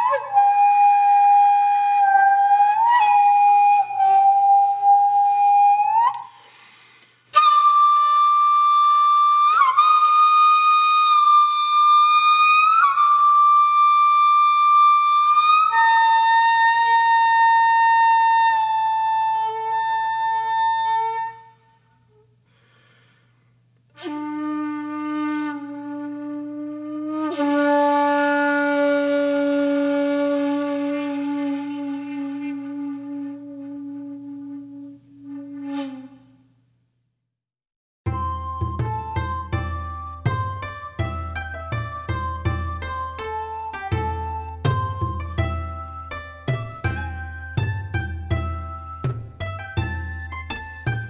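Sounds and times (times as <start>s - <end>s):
solo flute: 0.0s - 22.4s, 23.9s - 36.7s, 38.1s - 51.0s.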